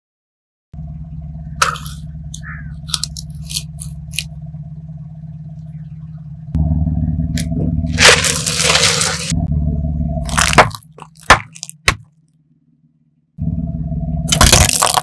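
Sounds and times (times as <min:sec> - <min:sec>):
car engine idling: 0:00.8 - 0:15.0
tyre crunching and crackling: 0:01.6 - 0:04.3, 0:07.9 - 0:09.5, 0:10.3 - 0:12.0, 0:14.3 - 0:15.0.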